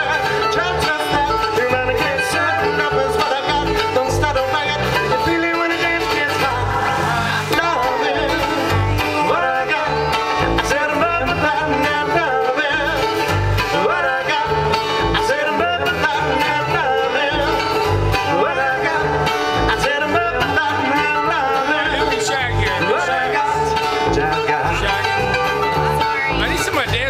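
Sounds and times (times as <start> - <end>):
bluegrass band playing: 0.0 - 27.0.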